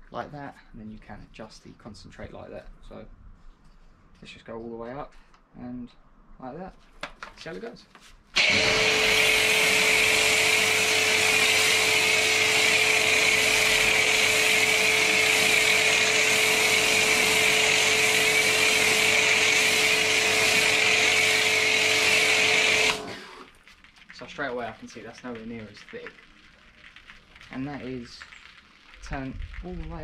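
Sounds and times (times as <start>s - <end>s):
foam lance spraying hiss: 8.4s - 23.5s
pressure washer motor hum: 8.4s - 23.6s.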